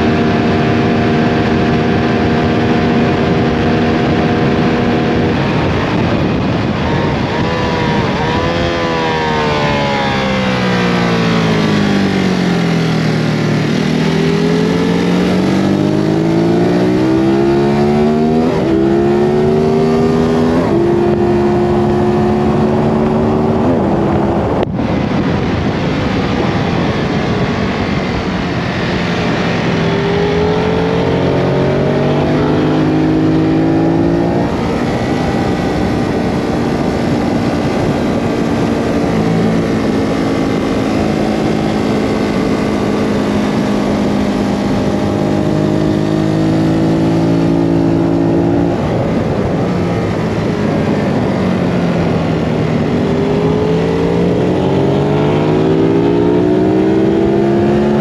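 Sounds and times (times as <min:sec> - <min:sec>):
motorcycle engine revving: 0:00.0 - 0:58.0
steady rushing noise: 0:00.0 - 0:58.0.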